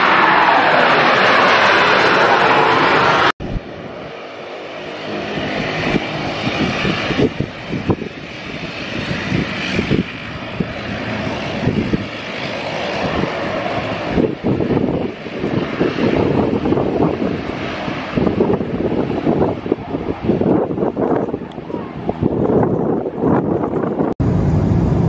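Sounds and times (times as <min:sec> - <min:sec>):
jet engines at takeoff power: 0:00.0 - 0:25.0
turboprop engines and propellers: 0:00.0 - 0:25.0
wind buffeting the microphone: 0:05.0 - 0:25.0.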